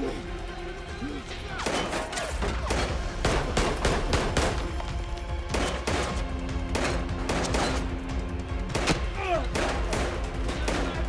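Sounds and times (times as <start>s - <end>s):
dramatic film score music: 0.0s - 11.0s
gunshots: 1.5s - 8.0s, 8.6s - 11.0s.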